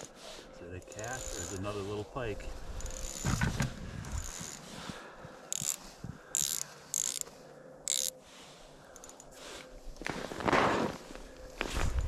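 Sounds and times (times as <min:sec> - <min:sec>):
fishing reel whirring: 0:00.8 - 0:01.8, 0:02.7 - 0:04.7, 0:05.5 - 0:08.2.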